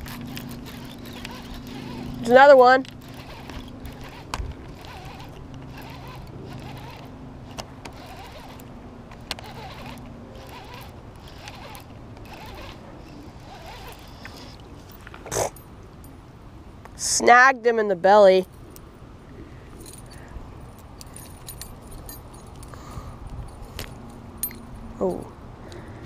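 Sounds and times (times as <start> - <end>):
fishing reel whirring: 0.0 - 8.7, 9.3 - 14.6.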